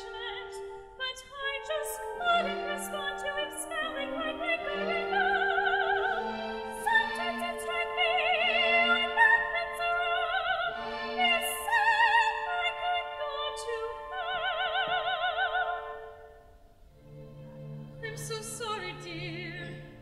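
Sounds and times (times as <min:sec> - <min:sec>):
operatic singing: 0:00.0 - 0:16.2, 0:17.1 - 0:20.0.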